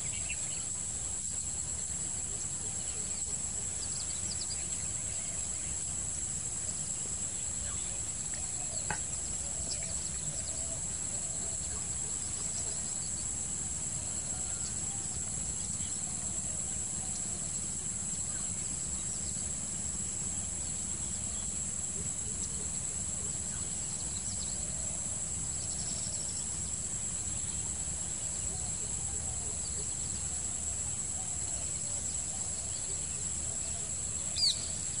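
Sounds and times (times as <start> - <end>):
insects droning: 0.0 - 35.0
faint bird chirps: 28.4 - 35.0.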